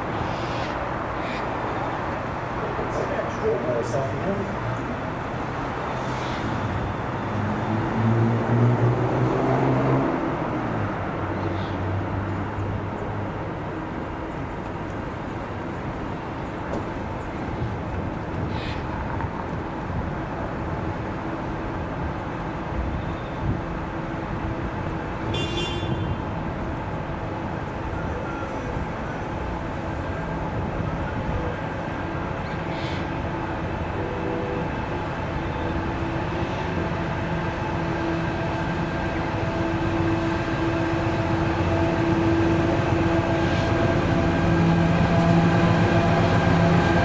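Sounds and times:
diesel locomotive engine rumble: 0.0s - 47.0s.

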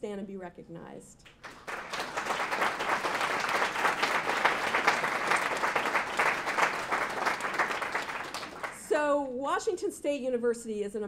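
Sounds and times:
audience applause: 1.4s - 8.8s.

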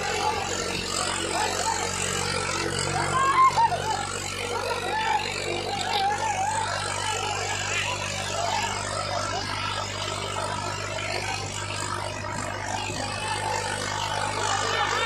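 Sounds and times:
men shouting: 0.0s - 8.8s
tractor diesel engine running: 0.0s - 15.0s.

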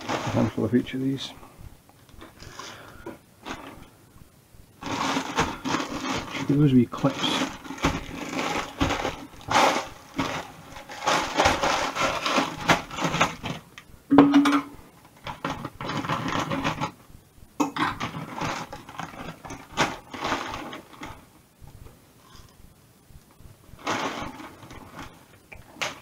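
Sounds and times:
plastic bags crinkling: 0.0s - 1.3s, 2.2s - 3.9s, 4.8s - 13.8s, 15.0s - 17.0s, 17.8s - 21.3s, 23.8s - 26.0s.

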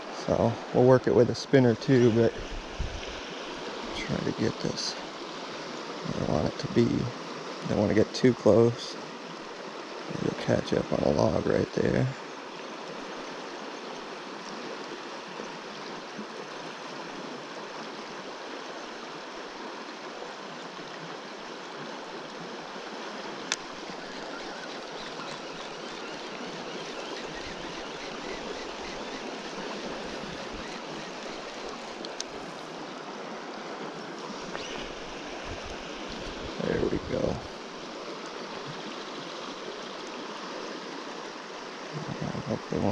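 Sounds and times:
river water rushing over gravel: 0.0s - 42.9s.

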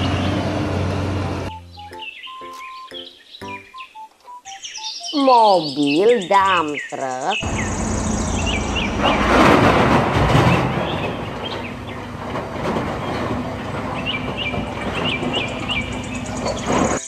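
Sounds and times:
diesel engine running under load: 0.0s - 1.6s, 7.4s - 17.0s.

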